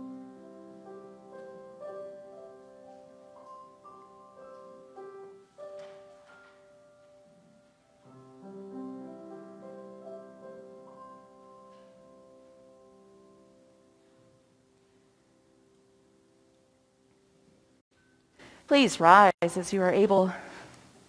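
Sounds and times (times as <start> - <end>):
slow keyboard chords: 0.0 - 17.4.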